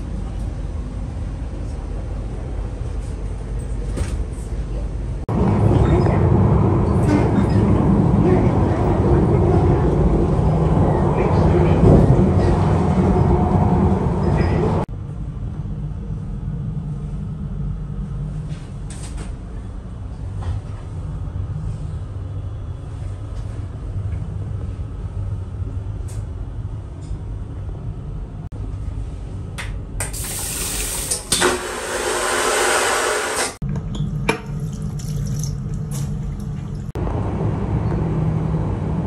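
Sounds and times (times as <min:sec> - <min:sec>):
train rumble: 0:00.0 - 0:29.5, 0:35.5 - 0:39.0
toilet flushing with rushing hiss: 0:30.1 - 0:33.6.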